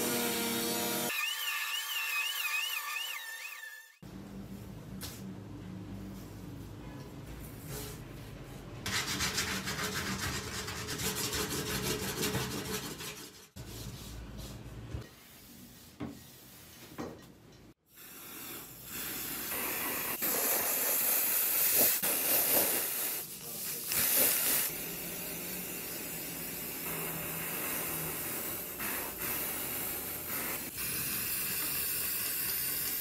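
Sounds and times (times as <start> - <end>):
spray hiss: 18.0 - 33.0.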